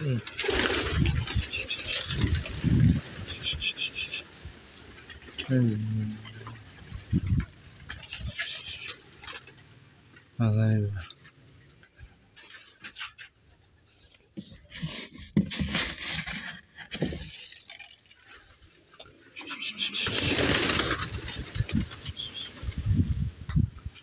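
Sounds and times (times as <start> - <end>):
pigeons wings flapping: 0.0 - 10.4, 19.4 - 23.1.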